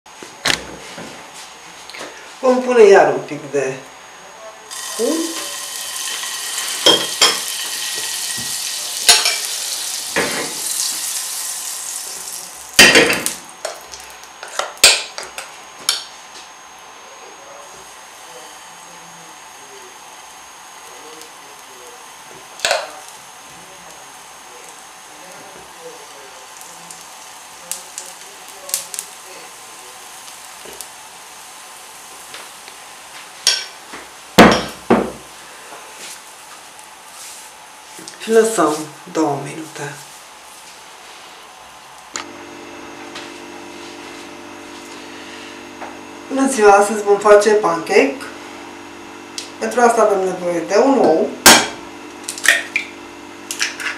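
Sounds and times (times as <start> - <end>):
butter sizzling in a frying pan: 4.7 - 16.4, 17.6 - 53.9.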